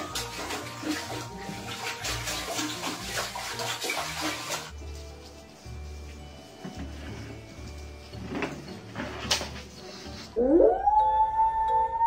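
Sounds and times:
dog howling: 10.4 - 12.0.

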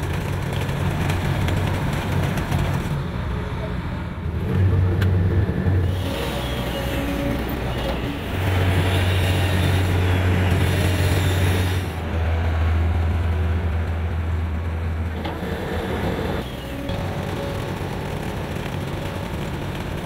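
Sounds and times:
diesel engines of paving machinery: 0.0 - 20.0.

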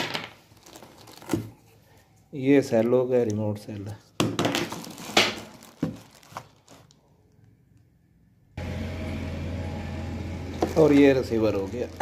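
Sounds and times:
plastic packaging rustling: 0.0 - 2.0, 4.2 - 7.1, 10.5 - 12.0.

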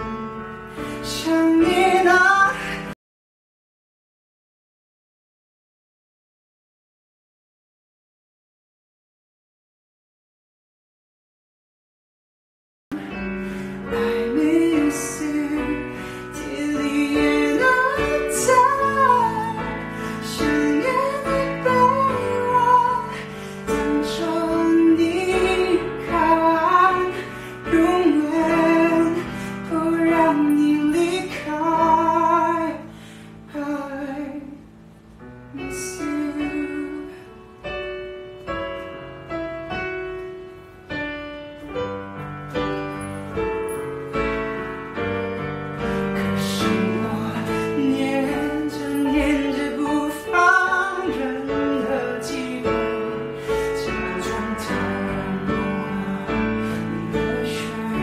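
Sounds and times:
man singing a slow ballad: 0.0 - 3.0, 13.0 - 34.6, 35.5 - 37.4, 45.8 - 58.0
piano accompaniment: 0.0 - 3.0, 12.9 - 58.0.

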